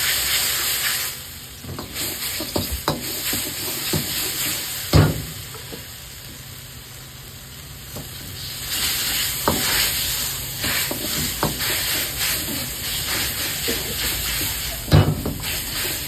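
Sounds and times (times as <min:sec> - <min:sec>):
food sizzling: 0:00.0 - 0:16.0
ladle scraping a wok: 0:01.8 - 0:04.9, 0:08.4 - 0:16.0.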